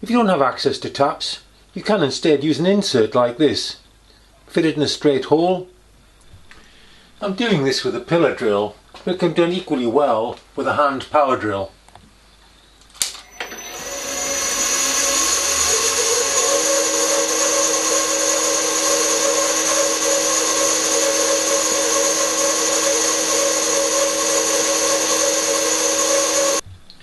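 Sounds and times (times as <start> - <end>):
pillar drill drilling metal: 13.2 - 26.6.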